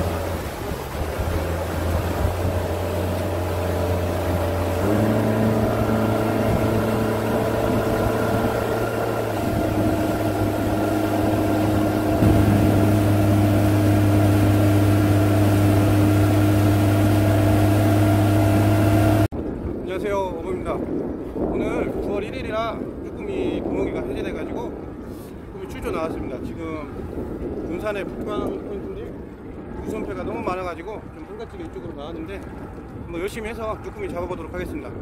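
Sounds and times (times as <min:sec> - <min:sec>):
outboard motor running: 0:00.0 - 0:19.6.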